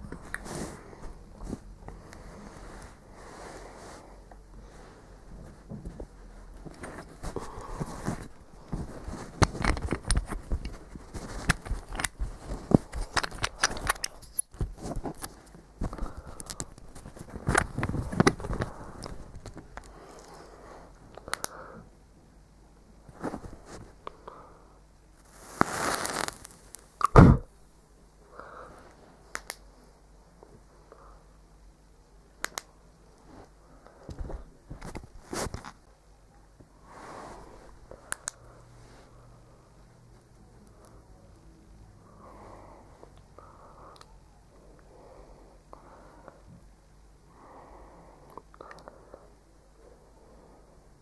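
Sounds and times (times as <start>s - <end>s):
rustling: 0.0s - 21.4s, 23.0s - 24.1s, 25.2s - 26.9s, 33.2s - 35.9s
hands handling small device: 6.6s - 20.4s.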